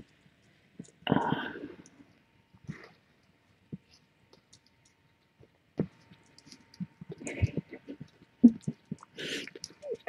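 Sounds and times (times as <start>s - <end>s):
small clicks: 4.3s - 5.0s.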